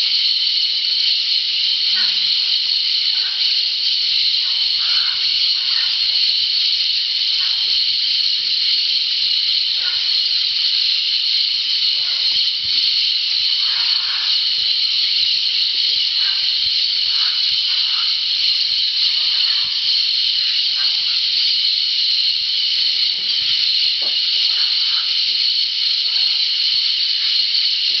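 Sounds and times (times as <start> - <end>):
high-pitched insect drone: 0.0 - 28.0
parrots squawking: 4.2 - 21.6, 22.6 - 25.4.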